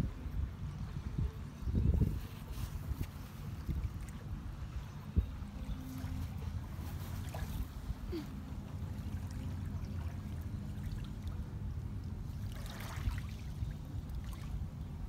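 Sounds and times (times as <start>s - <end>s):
waves lapping on pebbles: 12.3s - 14.6s.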